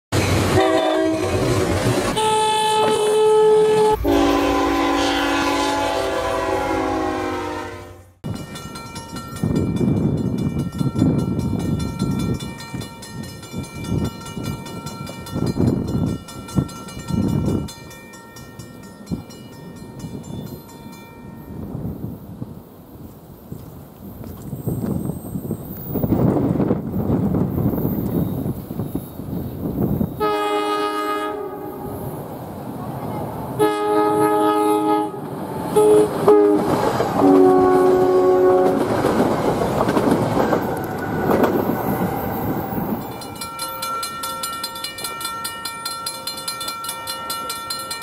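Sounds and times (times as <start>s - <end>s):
locomotive air horn blowing: 0.5s - 8.2s, 30.2s - 32.0s, 33.6s - 38.9s
wind buffeting microphone: 8.2s - 17.9s, 21.4s - 30.6s, 35.0s - 43.9s.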